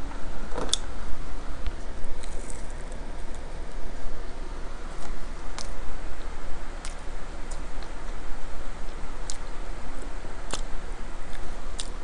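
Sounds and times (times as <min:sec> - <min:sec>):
steady low hum: 0:00.0 - 0:12.0
person chewing food: 0:08.9 - 0:09.6, 0:11.3 - 0:12.0.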